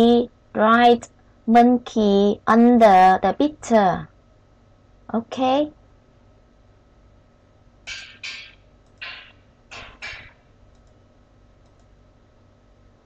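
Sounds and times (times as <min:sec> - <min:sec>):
computer input clicks: 0:07.9 - 0:11.0, 0:11.6 - 0:11.9
faint ticks: 0:10.7 - 0:11.0, 0:11.6 - 0:12.0.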